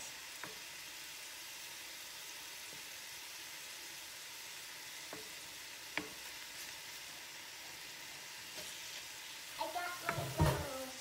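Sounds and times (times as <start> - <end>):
meat sizzling in a skillet: 0.0 - 11.0
wooden spatula knocking pan: 10.0 - 10.8.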